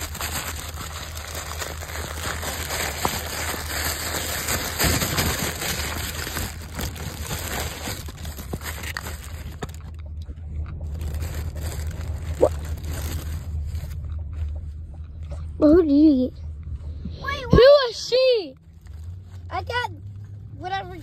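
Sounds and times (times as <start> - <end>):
paper wrapper crinkling: 0.0 - 10.0, 10.6 - 14.4, 18.6 - 19.4
low car rumble: 0.0 - 21.0.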